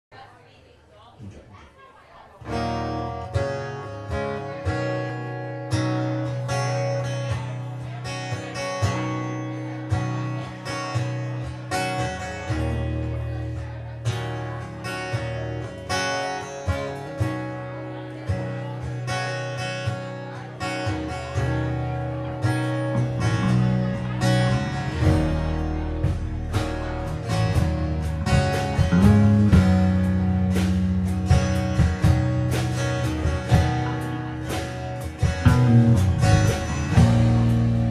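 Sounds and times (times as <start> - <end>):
strummed acoustic guitars: 2.3 - 37.9
electric bass line: 21.6 - 37.9.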